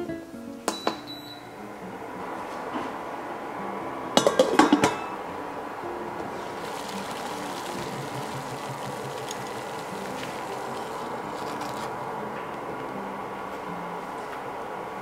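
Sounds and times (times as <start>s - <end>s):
water boiling in a pot: 1.3s - 15.0s.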